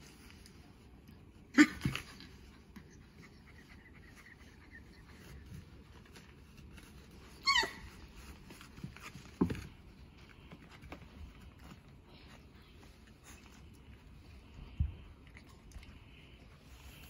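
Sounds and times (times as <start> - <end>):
puppy yipping: 7.2 - 8.3
puppy squealing: 7.3 - 8.1.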